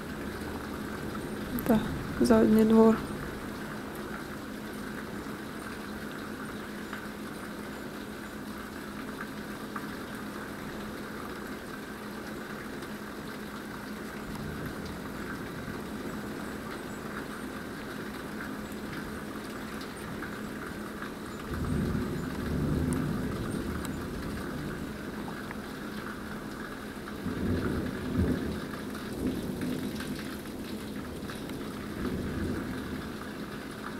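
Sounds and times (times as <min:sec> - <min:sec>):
steady rain: 0:00.0 - 0:33.9
wind: 0:00.0 - 0:33.9
low thunder rumble: 0:21.4 - 0:25.3, 0:31.1 - 0:33.2.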